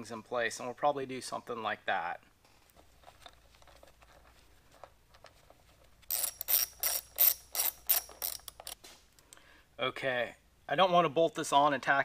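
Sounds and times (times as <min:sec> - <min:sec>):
ratchet wrench clicking: 0:06.0 - 0:08.8.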